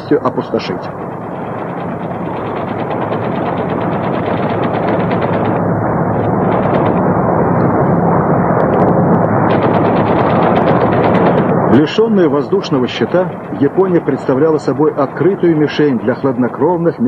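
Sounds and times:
low steady hum: 0.0 - 17.0
machine guns firing: 1.0 - 7.1, 9.4 - 16.0.

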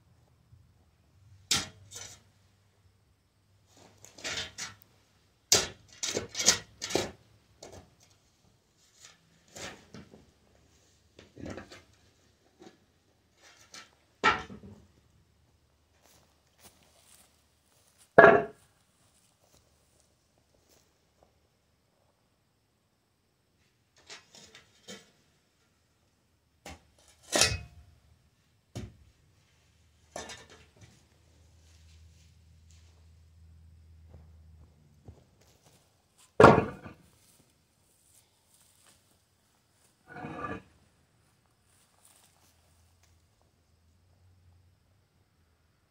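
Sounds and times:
shovel scraping gravelly dirt: 3.8 - 4.8, 40.1 - 40.7
metal objects clanking: 5.6 - 7.8, 18.2 - 18.6, 27.1 - 27.8, 30.1 - 30.8, 36.4 - 37.0, 40.1 - 40.7.

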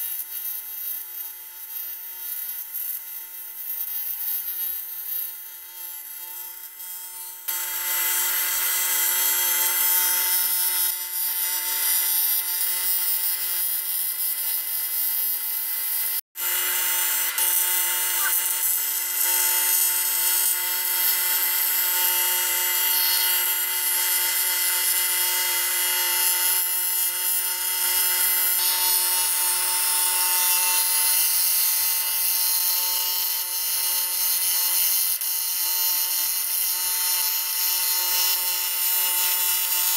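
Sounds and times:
welding arc hissing: 17.4 - 23.5.

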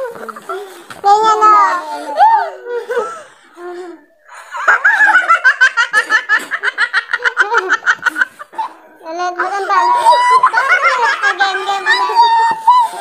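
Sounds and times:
young women laughing: 4.3 - 8.8, 9.4 - 13.0.

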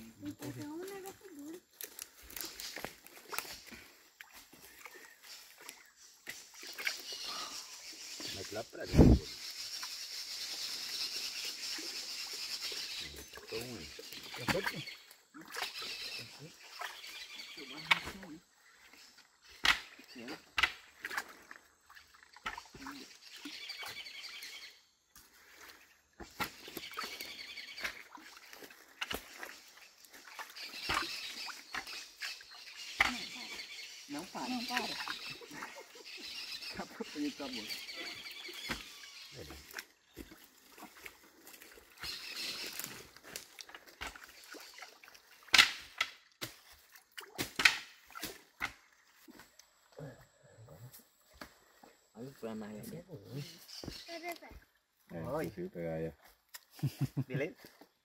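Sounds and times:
muddy water sloshing: 0.0 - 7.6, 11.5 - 24.6, 25.2 - 50.3
knocks and splashes in water: 13.3 - 15.9, 19.6 - 23.2, 27.8 - 32.3, 38.5 - 49.3.

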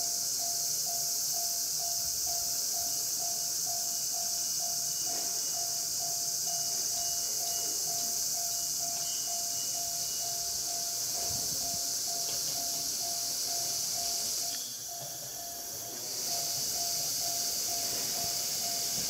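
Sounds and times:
level crossing warning bell: 0.0 - 19.0
steady high hiss: 0.0 - 19.0.

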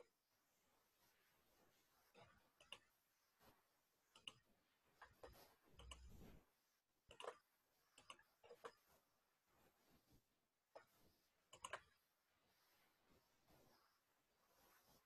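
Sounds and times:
computer keys clicking: 4.2 - 4.4, 7.1 - 7.4, 11.5 - 12.0.

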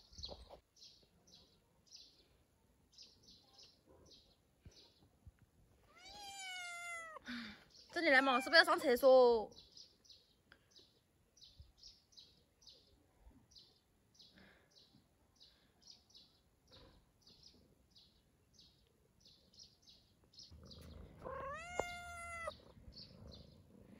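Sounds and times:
cat meowing: 5.8 - 7.2, 8.1 - 8.8, 21.0 - 22.6.

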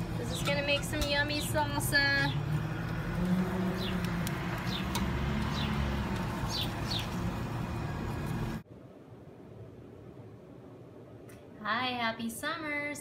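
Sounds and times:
low outdoor rumble: 0.0 - 13.0
bird chirping: 3.6 - 7.3.

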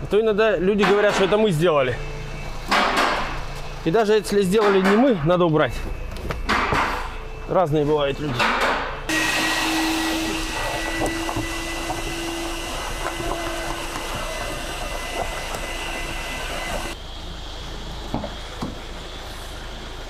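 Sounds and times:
vacuum cleaner running: 9.1 - 17.0.

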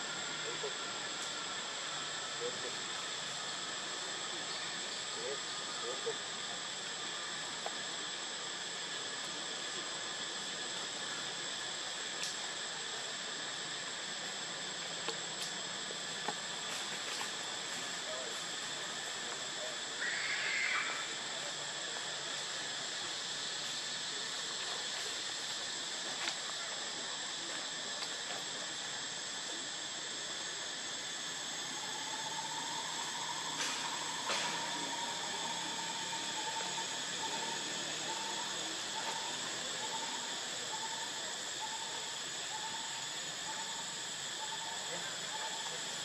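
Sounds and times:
high-pitched insect drone: 0.0 - 46.0.

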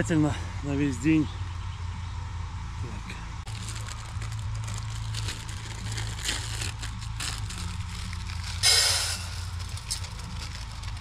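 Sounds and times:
faint distant music: 0.0 - 11.0
loud burst of noise: 8.6 - 9.6.

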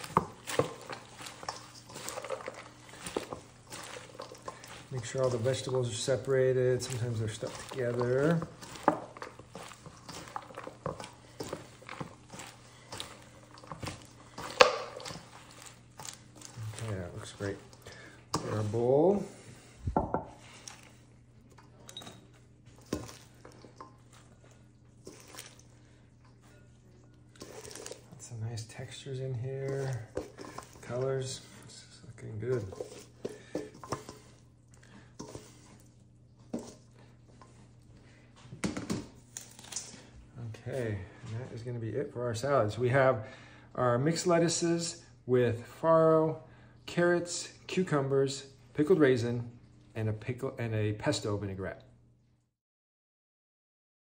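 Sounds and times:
salad leaves tossed in metal bowl: 0.0 - 19.2, 22.0 - 34.5, 35.1 - 37.6, 38.7 - 40.1
faint steady hum: 0.2 - 48.8.

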